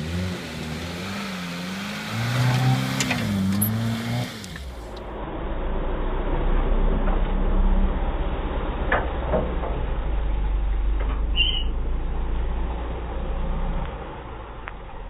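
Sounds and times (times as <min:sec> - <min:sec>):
engine revving under load: 0:00.0 - 0:05.0
low rumble: 0:04.5 - 0:15.0.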